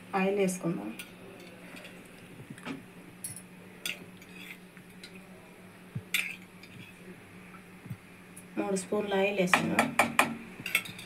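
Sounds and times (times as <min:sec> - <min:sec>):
faint steady hum: 0:00.0 - 0:11.0
steel spoon clinking on metal: 0:10.6 - 0:11.0.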